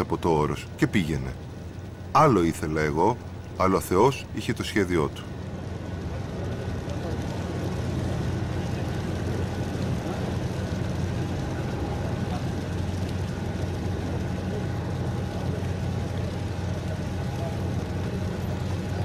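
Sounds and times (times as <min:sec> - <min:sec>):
wind and water rushing: 0:00.0 - 0:05.4
ferry engines droning: 0:00.0 - 0:19.0.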